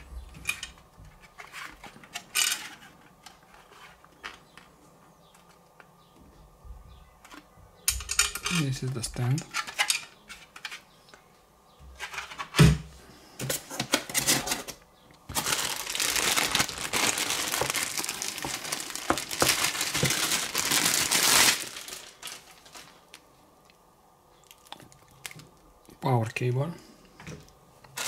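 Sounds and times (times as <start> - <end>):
wrapping crinkling: 14.2 - 23.4, 24.4 - 25.6
packaging knocks and rattles: 15.3 - 23.0.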